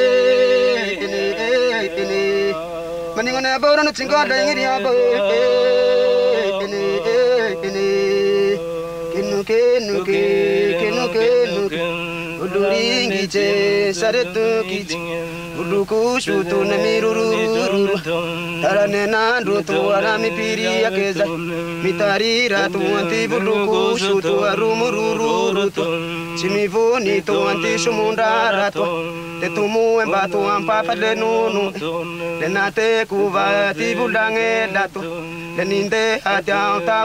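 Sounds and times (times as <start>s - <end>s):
chanted singing: 0.0s - 37.0s.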